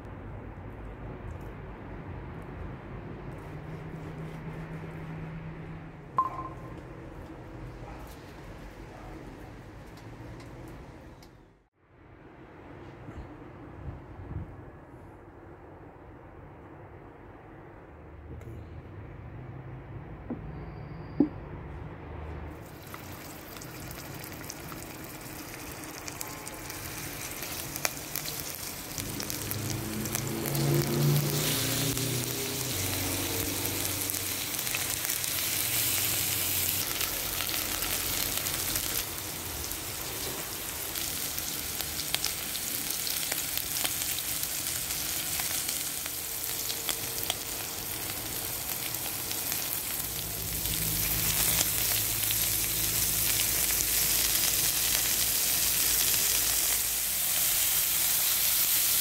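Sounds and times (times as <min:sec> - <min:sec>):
meat sizzling in oil: 0:22.6 - 0:59.0.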